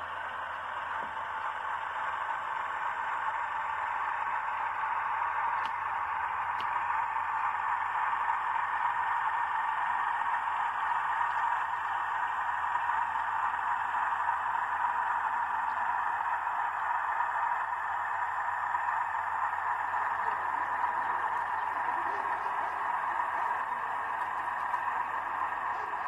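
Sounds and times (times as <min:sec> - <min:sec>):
faint low motor hum: 0:00.0 - 0:26.0
model train wheels hissing: 0:19.0 - 0:26.0.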